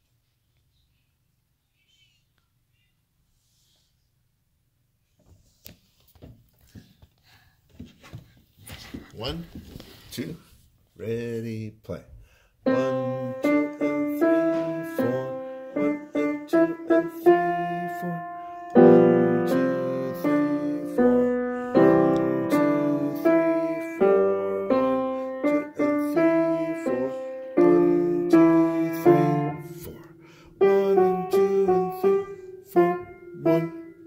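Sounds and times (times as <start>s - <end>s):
piano playing: 12.7s - 34.0s.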